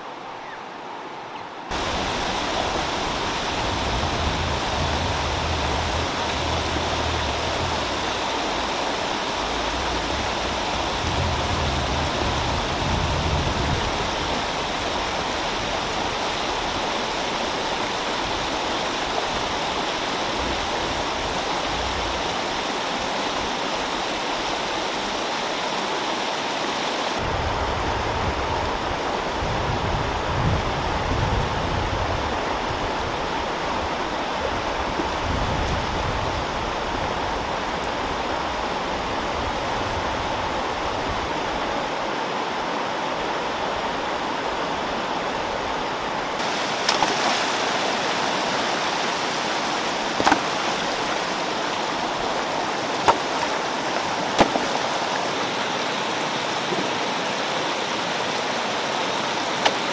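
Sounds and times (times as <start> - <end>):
water rushing over rocks: 1.6 - 59.9.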